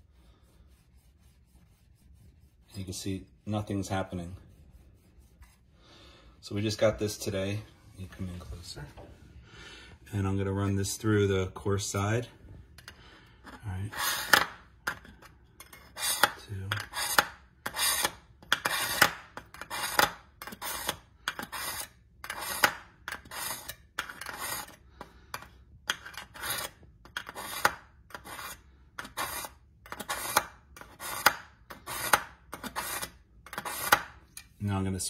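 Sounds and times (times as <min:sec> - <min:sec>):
knife scraping through sharpener: 0:15.6 - 0:24.8, 0:25.4 - 0:34.6.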